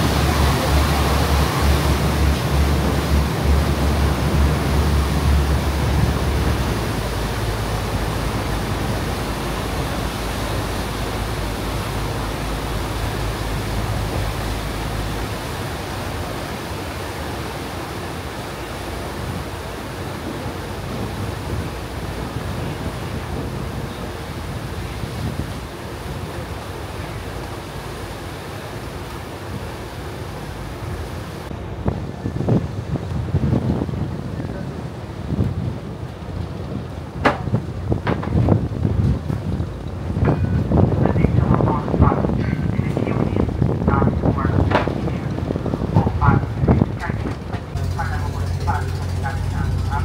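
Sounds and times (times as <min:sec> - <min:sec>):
low rumble: 0:00.0 - 0:16.5, 0:37.5 - 0:50.0
ferry propeller wake rushing: 0:00.0 - 0:50.0.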